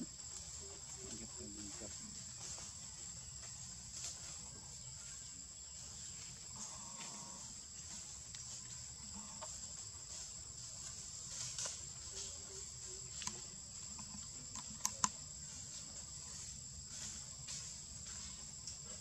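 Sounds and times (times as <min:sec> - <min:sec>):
insects droning: 0:00.0 - 0:19.0
sharp clicks: 0:14.0 - 0:15.2.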